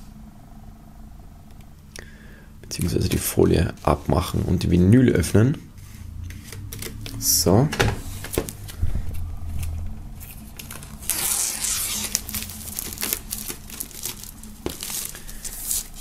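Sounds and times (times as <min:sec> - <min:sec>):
plastic film crinkling: 0:09.4 - 0:16.0.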